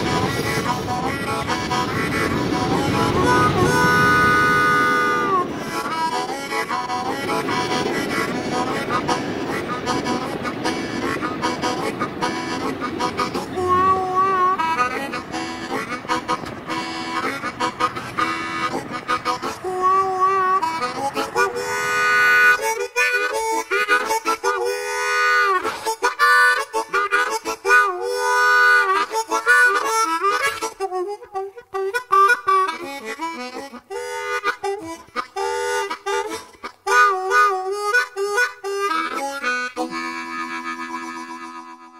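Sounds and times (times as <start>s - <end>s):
freight train rumble: 0.0s - 30.0s
harmonica melody: 0.0s - 41.9s.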